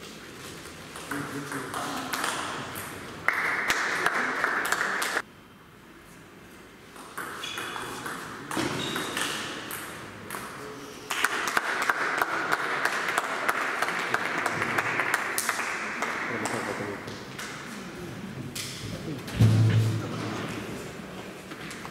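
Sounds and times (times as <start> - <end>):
small crowd applauding: 3.2 - 5.2, 11.1 - 17.0.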